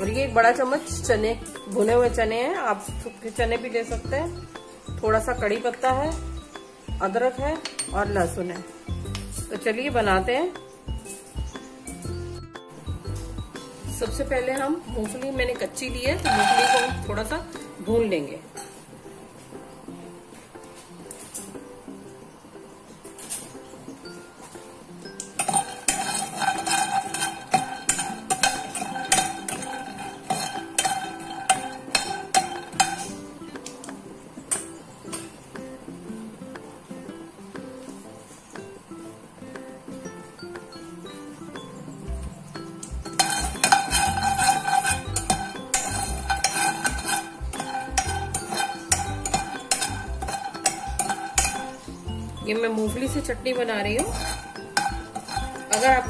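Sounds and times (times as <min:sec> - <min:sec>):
guitar background music: 0:00.0 - 0:56.0
spatula scraping nuts in pan: 0:13.6 - 0:17.5, 0:25.3 - 0:33.3, 0:42.8 - 0:56.0.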